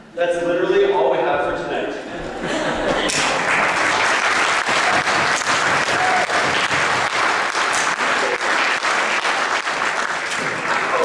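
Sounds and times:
audience applauding: 2.9 - 11.0.

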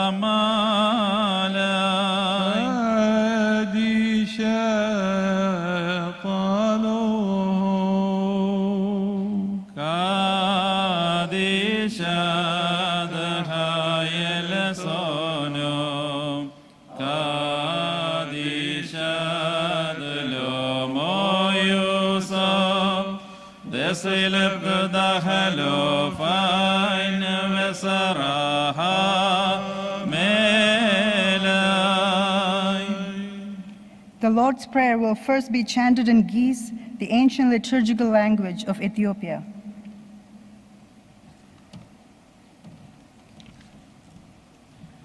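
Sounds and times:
man chanting a hymn: 0.0 - 33.9.

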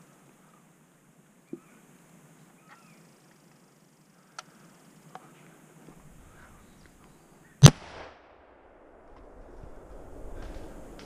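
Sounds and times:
rifle shot with echo: 7.6 - 9.4.

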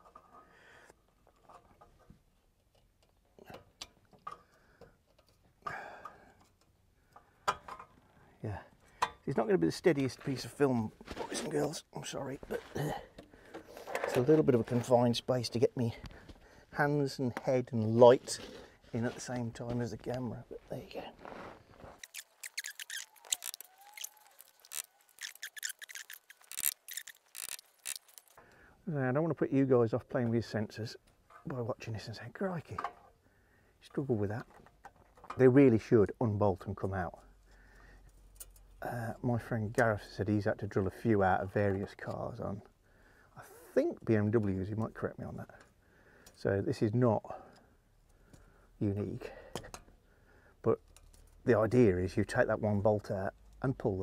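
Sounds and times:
metal tool scraping and clicking: 22.0 - 28.4.

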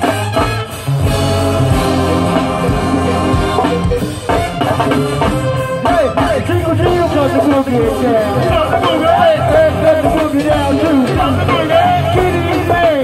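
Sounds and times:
drums: 0.0 - 13.0
horns: 0.0 - 13.0
voices singing: 5.8 - 13.0.

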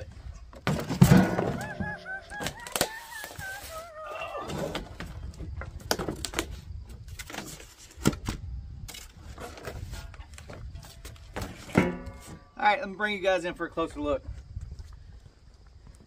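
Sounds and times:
heavy metal frame knocking in box: 0.7 - 1.9, 11.4 - 12.5
wavering high-pitched sound: 1.5 - 4.2.

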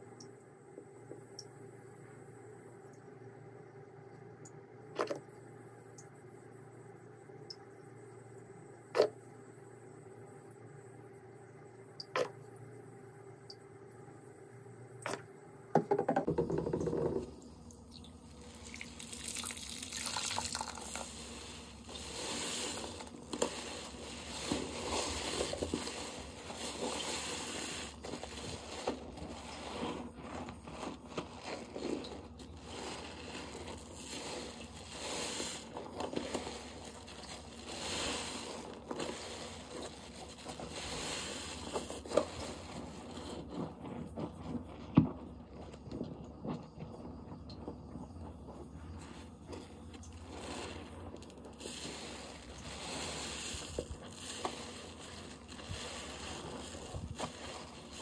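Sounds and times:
soapy water squishing and dripping: 16.8 - 58.0.

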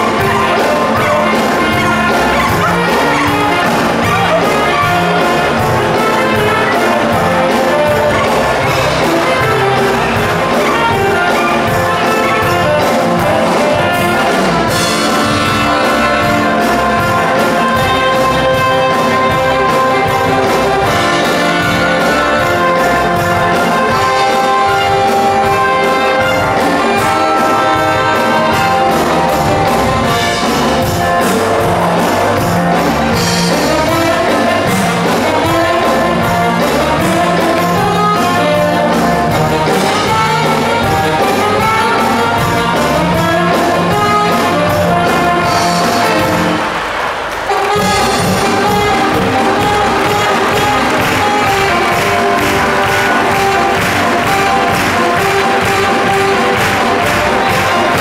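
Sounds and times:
upbeat brass music: 0.0 - 58.0.

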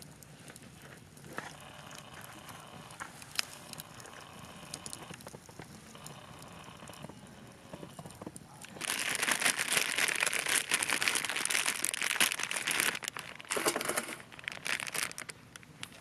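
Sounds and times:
plastic packet crinkling: 8.6 - 16.0.

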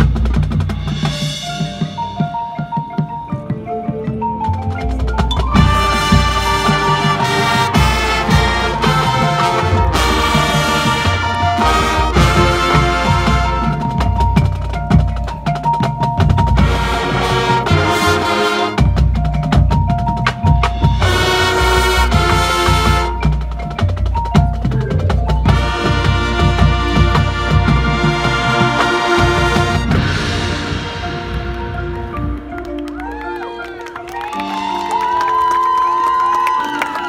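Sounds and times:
snare and bass drum rolls: 0.0 - 3.2, 4.7 - 32.6
held horn chords: 5.6 - 14.1, 25.5 - 34.0.

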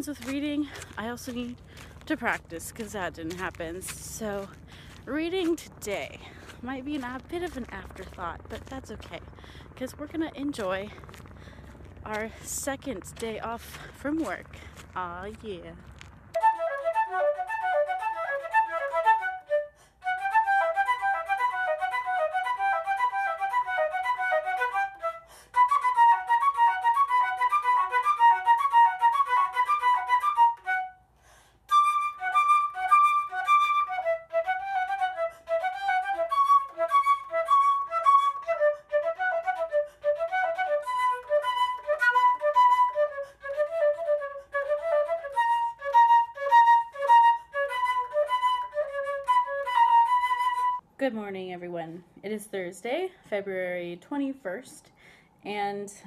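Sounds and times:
solo flute playing: 16.3 - 50.8.

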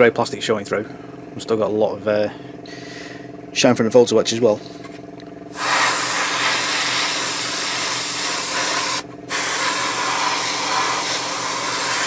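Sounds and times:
airbrush hissing: 5.5 - 12.0.

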